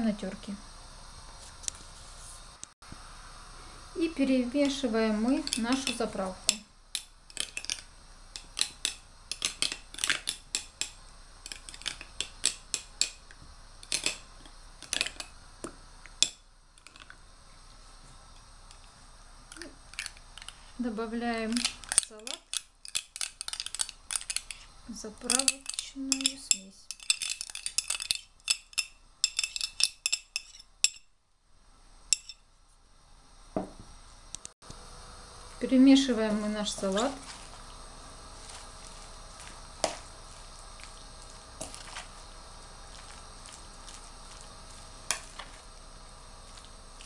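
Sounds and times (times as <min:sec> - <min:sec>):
spoon clinking against glass bowl: 0:25.3 - 0:31.1, 0:32.1 - 0:32.4
fork clinking against glass bowl: 0:32.1 - 0:32.4.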